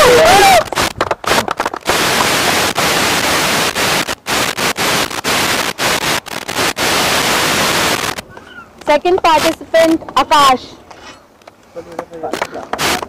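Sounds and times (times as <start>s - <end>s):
loud static-like hiss: 0.0s - 13.0s.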